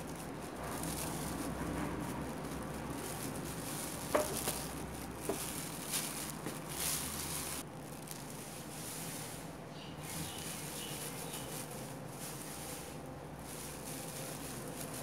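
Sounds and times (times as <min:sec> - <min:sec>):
spoon scraping and patting: 0:00.0 - 0:09.2.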